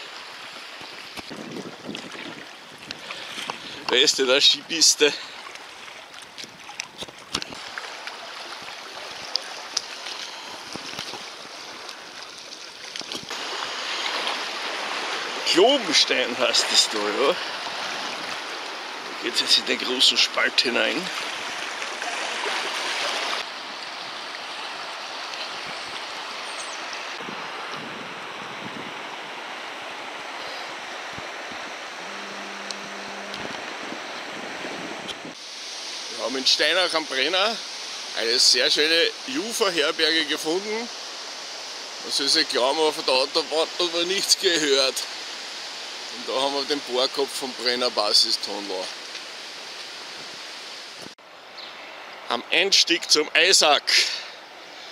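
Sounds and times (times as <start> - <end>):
paddle splashes and knocks: 0.0 - 4.0, 5.4 - 16.9, 21.0 - 23.5
river current rushing: 0.0 - 54.9
low hum: 31.7 - 35.3.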